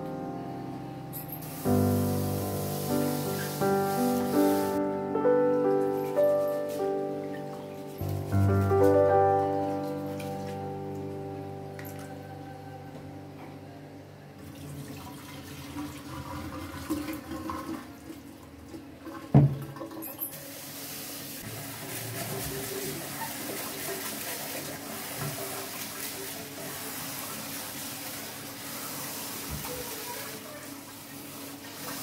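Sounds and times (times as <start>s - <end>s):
water poured off with splashing: 1.5s - 4.8s.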